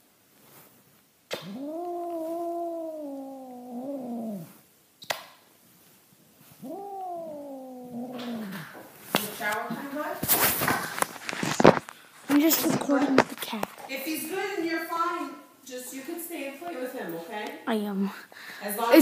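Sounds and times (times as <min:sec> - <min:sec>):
cat yowling: 0:01.3 - 0:04.5, 0:06.6 - 0:08.8.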